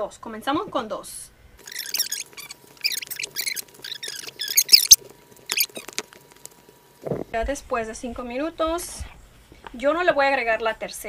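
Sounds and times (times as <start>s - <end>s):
dough squelching: 1.6s - 6.8s.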